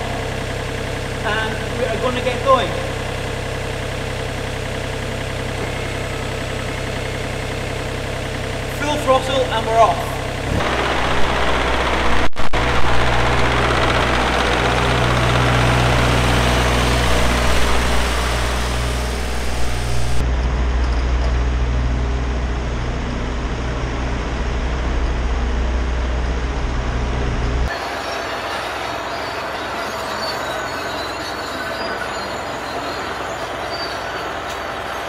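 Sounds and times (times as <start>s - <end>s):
excavator diesel engine: 0.0s - 35.0s
steady noise: 10.2s - 20.8s.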